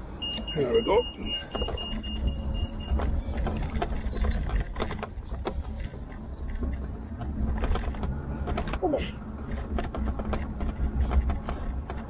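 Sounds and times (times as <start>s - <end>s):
wind and tyres rumbling: 0.0s - 12.0s
bike knocks and rattles: 2.7s - 8.8s, 9.4s - 12.0s.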